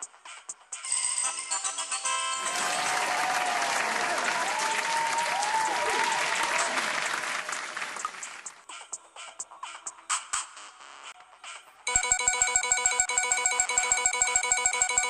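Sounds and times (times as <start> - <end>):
crowd applause and cheering: 2.4 - 8.6.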